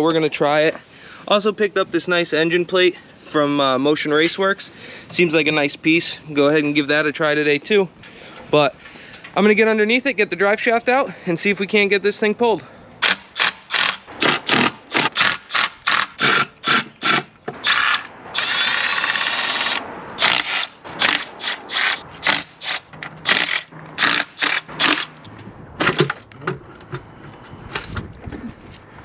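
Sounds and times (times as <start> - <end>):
cordless power driver bursts: 13.0 - 25.1.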